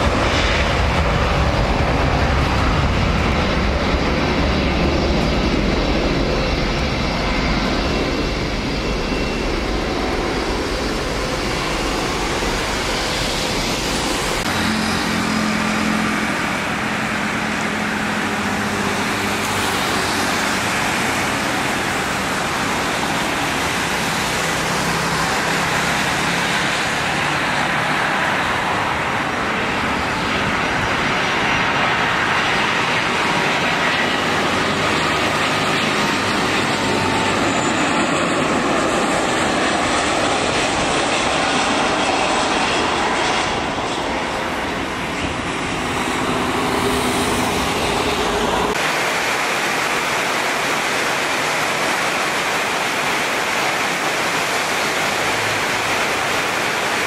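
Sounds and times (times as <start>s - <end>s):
jet engines landing: 0.0s - 57.0s
heavy rain hiss: 48.7s - 57.0s.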